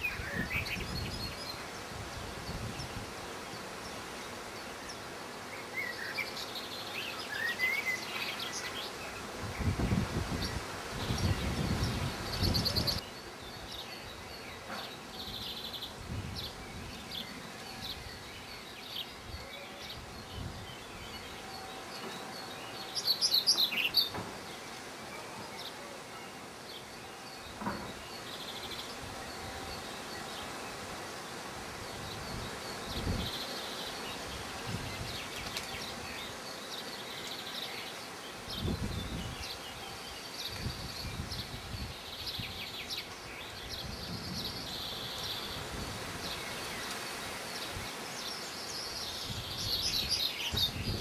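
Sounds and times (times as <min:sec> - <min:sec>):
small songbirds chirping: 0:00.0 - 0:51.0.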